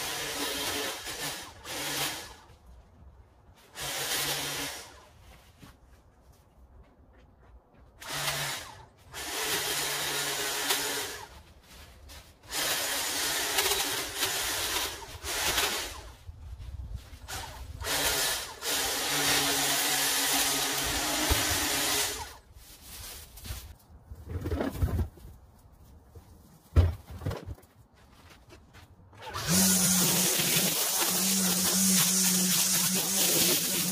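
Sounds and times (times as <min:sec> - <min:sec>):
pole trimmer motor cutting branches: 0:00.0 - 0:02.5, 0:08.0 - 0:11.4, 0:12.5 - 0:16.2, 0:17.3 - 0:22.4, 0:29.2 - 0:33.9.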